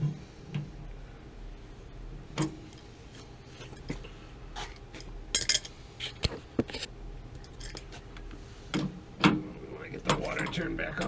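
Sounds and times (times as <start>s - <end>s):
hand tools clinking on metal: 10.0s - 11.0s.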